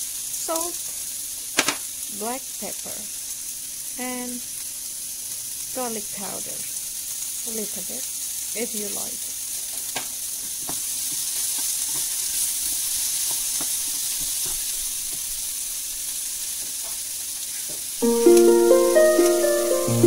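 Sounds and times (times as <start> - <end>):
vegetables sizzling in a frying pan: 0.0 - 20.0
wooden spoon stirring: 10.4 - 15.3
music: 18.0 - 20.0.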